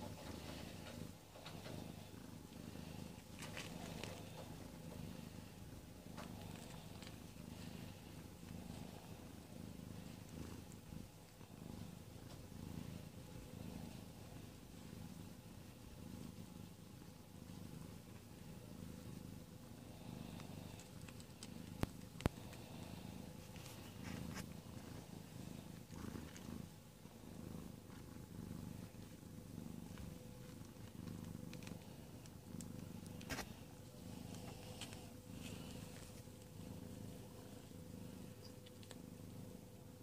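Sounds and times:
cat purring: 0.0 - 40.0.

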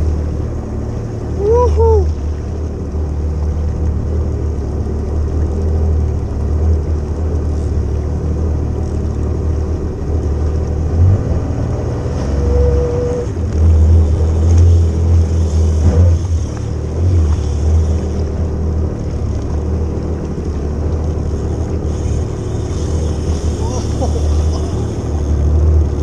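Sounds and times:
jet ski engine rumbling: 0.0 - 26.0
short steady tone: 12.2 - 13.4.

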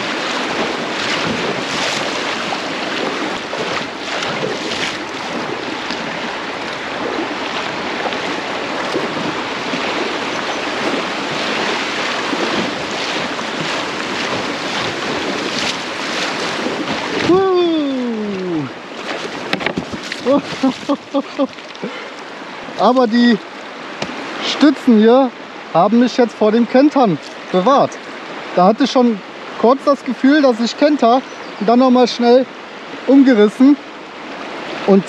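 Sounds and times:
sharp water splashes: 0.0 - 24.9
river water rushing: 0.0 - 35.0.

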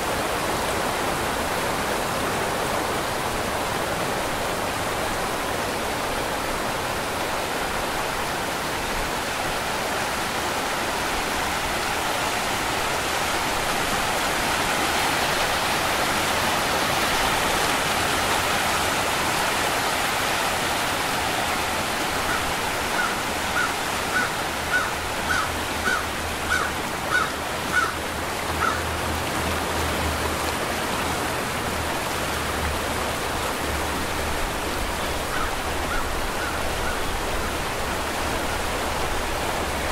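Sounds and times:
waterfall rushing: 0.0 - 39.9
bird calling: 22.2 - 28.0, 28.6 - 28.8, 35.3 - 37.2.

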